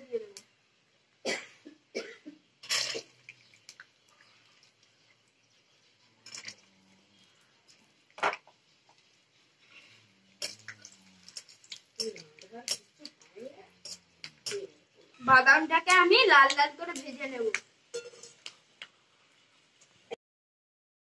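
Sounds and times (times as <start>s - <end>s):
faint frying sizzle: 0.0s - 20.2s
metal spatula scraping pan: 9.6s - 13.0s, 13.8s - 14.7s, 17.9s - 18.5s.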